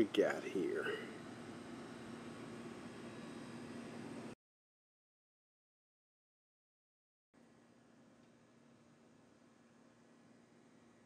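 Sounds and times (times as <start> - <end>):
faint low hum: 0.0 - 4.4, 7.4 - 11.0.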